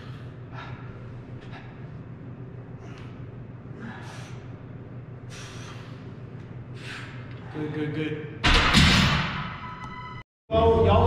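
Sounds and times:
steady low hum: 0.0s - 11.0s
man breathing sharply: 3.8s - 4.6s, 5.2s - 7.6s.

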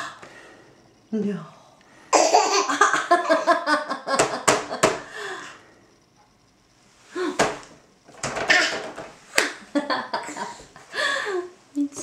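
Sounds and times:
baby laughing: 2.2s - 3.5s.

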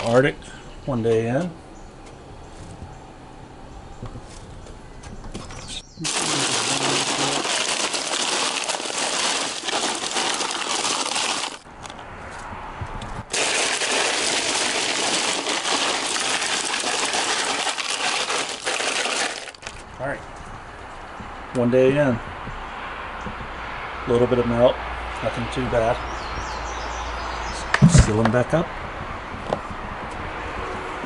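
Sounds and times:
ice cubes clattering: 6.0s - 11.6s, 13.3s - 19.8s.

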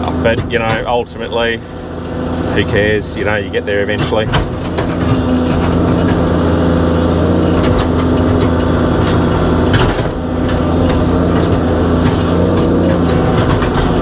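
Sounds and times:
diesel engine and hydraulics: 0.0s - 14.0s.

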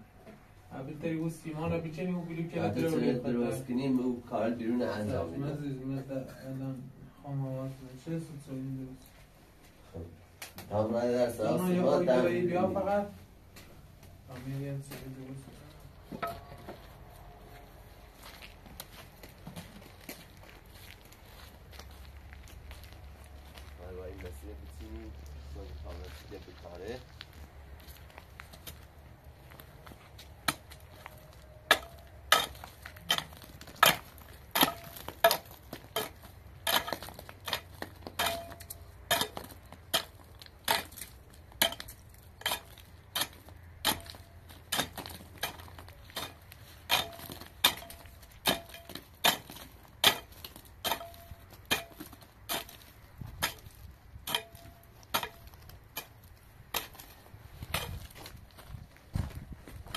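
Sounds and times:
metallic ring of pickaxe on stone: 16.2s - 16.6s, 31.7s - 52.8s, 53.4s - 56.1s
pickaxe striking stony ground: 30.3s - 59.9s.

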